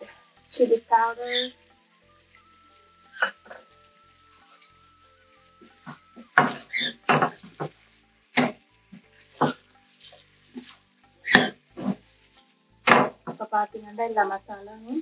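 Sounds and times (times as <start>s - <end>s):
wooden spatula scraping frying pan: 5.6s - 13.5s.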